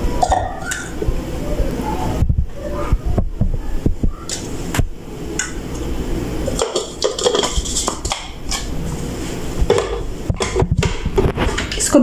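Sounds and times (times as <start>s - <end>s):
kitchen handling knocks and clicks: 9.7s - 11.9s.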